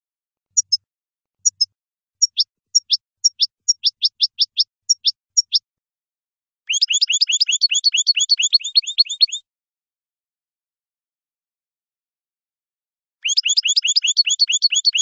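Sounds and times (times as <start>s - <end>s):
goldfinch singing: 1.4s - 5.6s, 6.7s - 9.4s, 13.2s - 15.0s.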